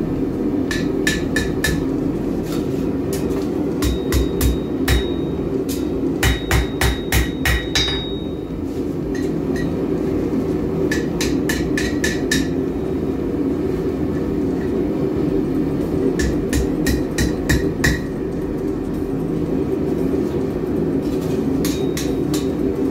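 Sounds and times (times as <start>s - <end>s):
steady low hum: 0.0s - 22.9s
hammer striking steel on anvil: 0.7s - 1.9s, 3.8s - 8.4s, 9.1s - 9.8s, 10.9s - 12.6s, 16.2s - 18.1s, 21.6s - 22.6s.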